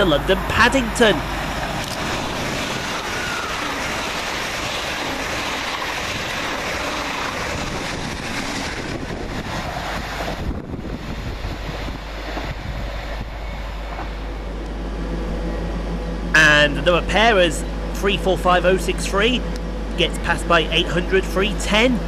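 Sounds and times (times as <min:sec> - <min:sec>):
train passing at speed: 0:00.3 - 0:22.0.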